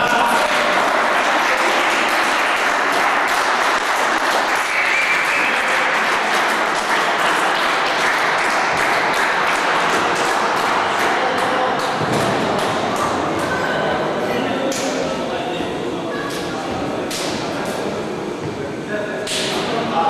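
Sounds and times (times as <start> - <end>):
people clapping: 0.0 - 13.8.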